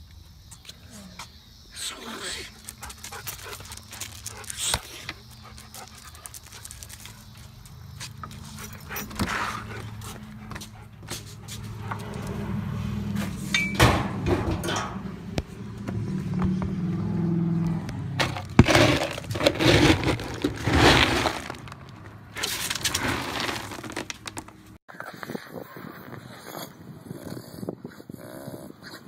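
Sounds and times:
sharp noises: 17.2s - 24.8s
scoop digging into dog kibble: 18.2s - 24.5s.

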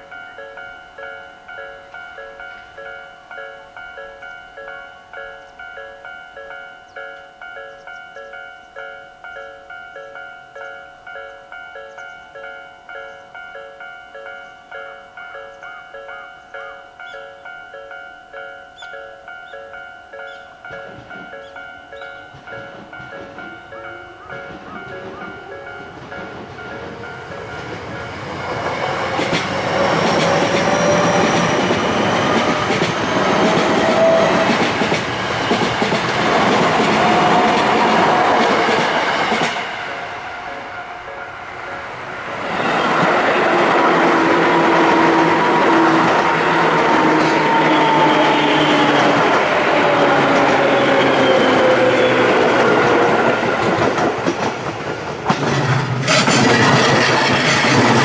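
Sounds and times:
level crossing warning bell: 0.0s - 53.8s
electric train passing: 0.0s - 58.0s
wheels clacking over rail joints: 20.3s - 40.1s, 47.8s - 58.0s.

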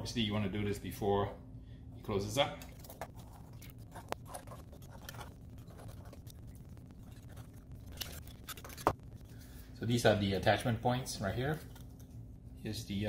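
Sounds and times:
knife scraping clam shell: 2.7s - 8.9s.

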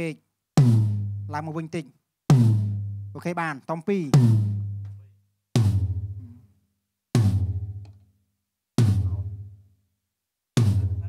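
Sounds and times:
floor tom hits: 0.6s - 1.4s, 2.3s - 3.1s, 4.2s - 5.0s, 5.6s - 6.4s, 7.2s - 8.0s, 8.8s - 9.5s, 10.6s - 11.0s.

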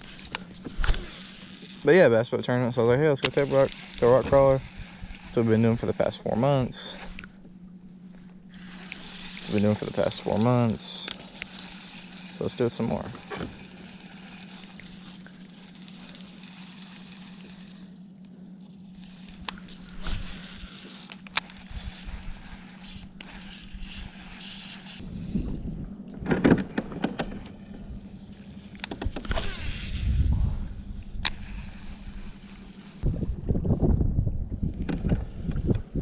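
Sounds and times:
electric motor humming: 0.0s - 33.9s
rumbling bursts: 21.4s - 36.0s.

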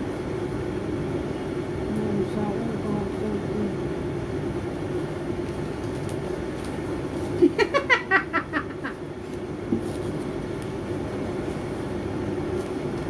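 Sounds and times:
woman laughing: 7.4s - 9.0s.

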